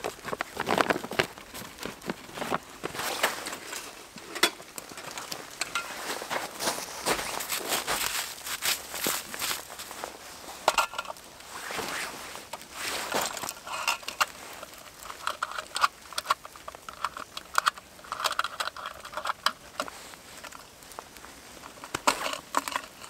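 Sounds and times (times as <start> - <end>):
hand crunching through snow: 6.0 - 10.6, 11.3 - 13.5.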